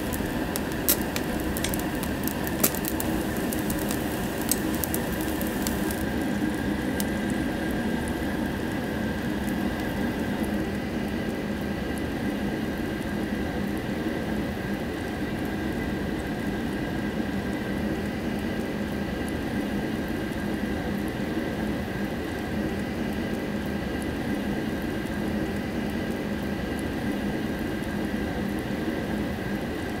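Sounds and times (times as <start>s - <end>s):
faint crackles: 0.0s - 10.5s
food sizzling on grill: 0.0s - 11.0s
steady hum: 0.0s - 30.0s.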